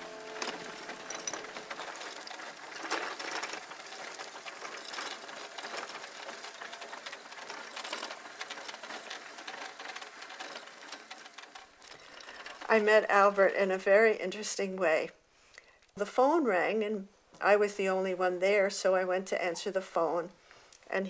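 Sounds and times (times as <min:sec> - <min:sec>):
wheelchair rolling on gravel: 0:00.0 - 0:13.8.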